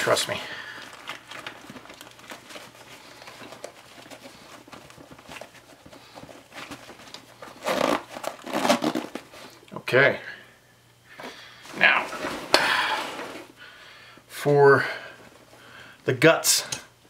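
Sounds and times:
nylon fabric rustling: 0:00.0 - 0:09.3
rasping zipper: 0:07.6 - 0:09.2.

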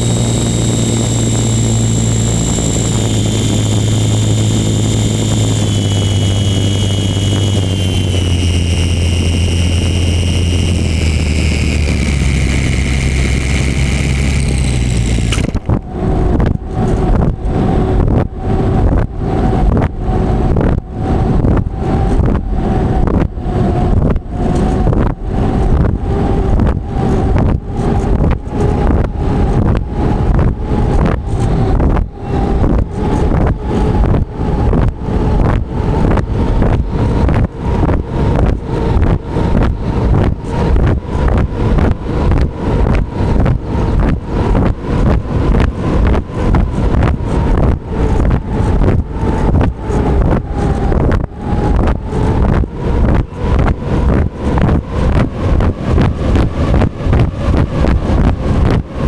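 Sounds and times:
small aircraft engine droning: 0:00.0 - 0:59.0
wind noise on microphone: 0:00.0 - 0:59.0.

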